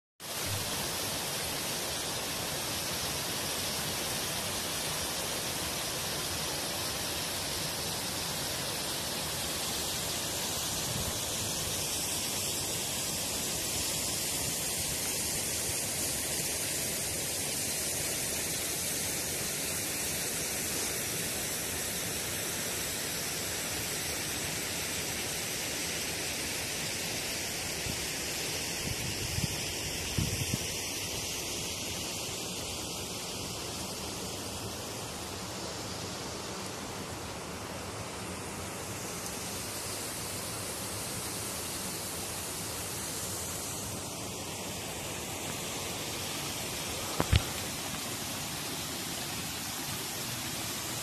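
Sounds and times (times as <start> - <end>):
waterfall rushing: 37.9 - 51.0.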